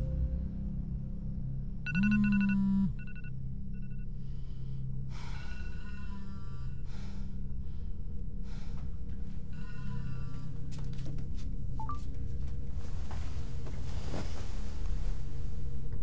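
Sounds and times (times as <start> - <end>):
low steady drone: 0.0 - 16.0
struck ringing tone: 1.9 - 4.0.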